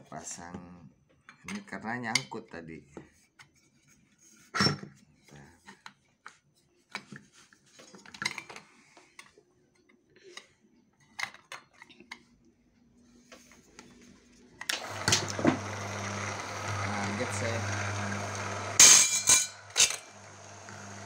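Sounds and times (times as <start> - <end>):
electric motor humming: 14.7 - 21.0.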